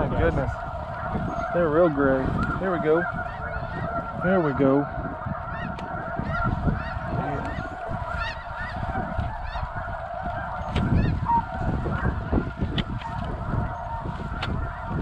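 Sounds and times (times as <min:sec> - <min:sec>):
geese honking: 0:00.0 - 0:15.0.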